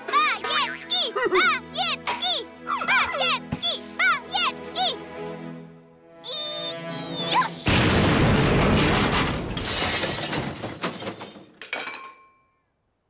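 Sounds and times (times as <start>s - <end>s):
television exploding: 7.7s - 9.9s.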